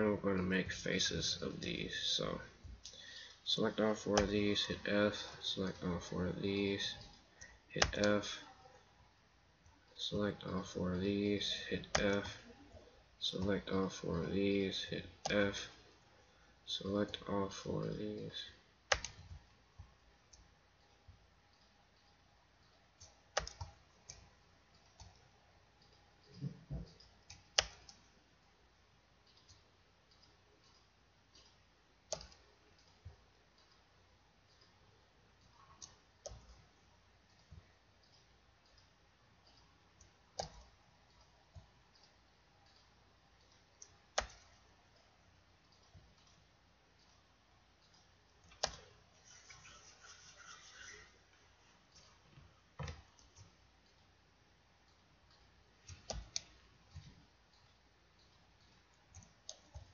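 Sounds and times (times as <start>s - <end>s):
faint room hiss: 0.0s - 59.9s
computer mouse clicks: 18.9s - 19.4s, 20.3s - 28.1s, 29.2s - 33.8s, 35.4s - 36.7s, 37.3s - 44.6s, 47.8s - 51.3s, 51.9s - 54.1s, 54.9s - 59.9s
keyboard key presses: 18.9s - 19.4s, 23.0s - 24.2s
mouse and keyboard clicks: 18.9s - 19.4s, 23.0s - 25.2s, 31.4s - 33.8s, 47.8s - 51.2s.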